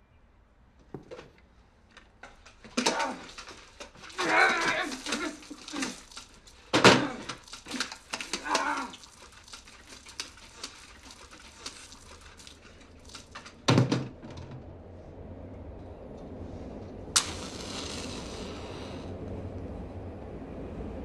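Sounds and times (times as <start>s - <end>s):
man groaning: 4.2s - 6.0s.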